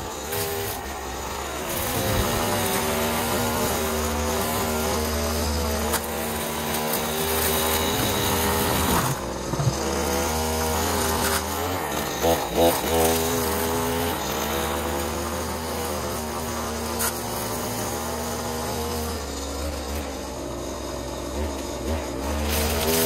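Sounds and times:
small two-stroke engine revving: 0.0 - 23.0.

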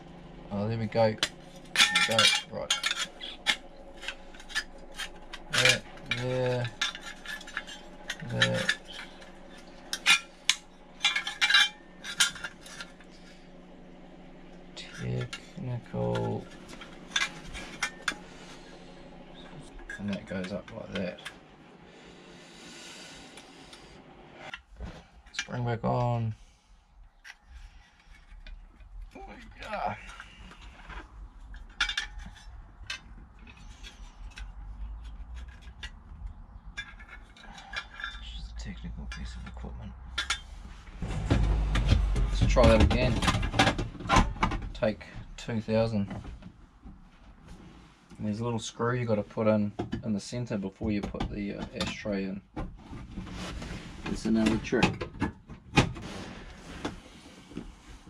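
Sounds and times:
low hum: 0.0 - 49.6
small metal parts clinking: 1.1 - 13.4.

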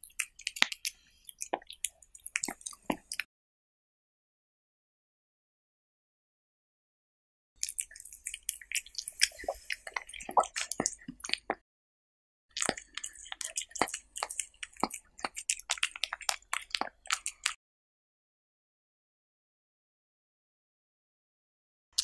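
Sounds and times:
cat chewing wetly: 0.0 - 3.3, 7.6 - 11.6, 12.5 - 17.6.

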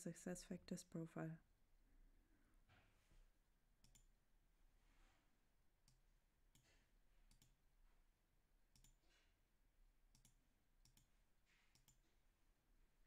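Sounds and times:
computer mouse clicks: 3.8 - 4.1, 5.8 - 7.6, 8.7 - 9.0, 10.1 - 11.1, 11.7 - 12.0.

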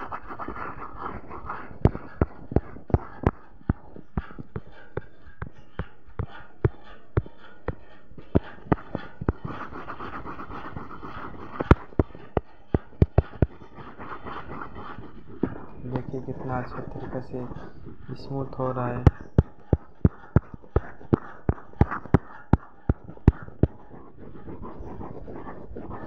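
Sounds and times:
fingertip tapping touchscreen: 0.0 - 26.0.

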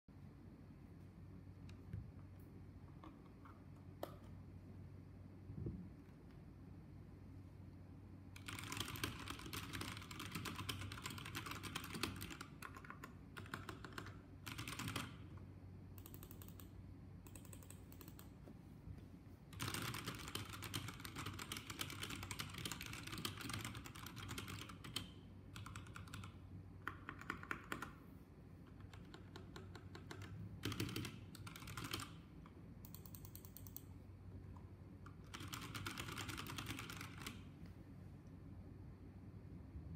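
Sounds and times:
mechanical keyboard typing: 8.4 - 18.4, 19.6 - 28.0, 28.7 - 33.9, 35.1 - 37.5.

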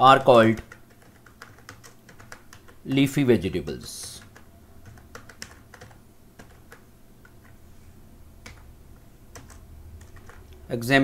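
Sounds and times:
faint low hum: 0.0 - 11.0
computer keyboard typing: 0.3 - 3.1, 3.8 - 7.6, 8.4 - 10.6.

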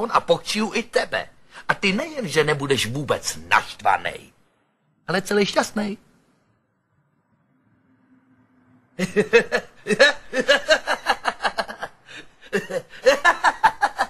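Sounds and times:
men laughing heartily: 9.0 - 14.0.

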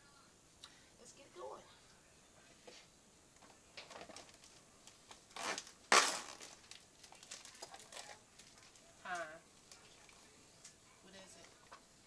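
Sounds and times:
plastic film rustling: 3.8 - 10.2
plastic film ripping: 3.9 - 8.8.

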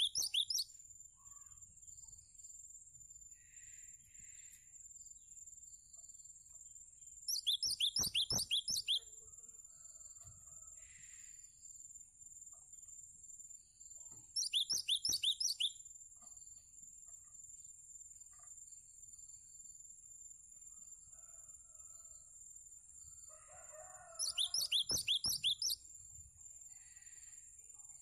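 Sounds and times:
bird singing high sharp notes: 0.0 - 0.7, 7.3 - 9.0, 14.4 - 15.8, 24.2 - 25.8.

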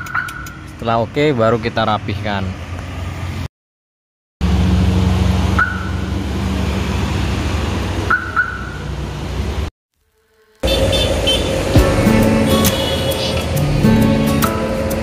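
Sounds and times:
car alarm chirping: 5.6 - 6.1, 8.1 - 8.9.

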